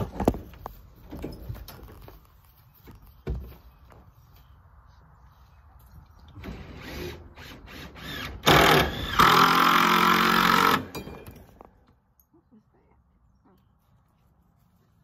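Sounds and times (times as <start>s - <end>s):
power drill driving a screw: 6.6s - 10.9s.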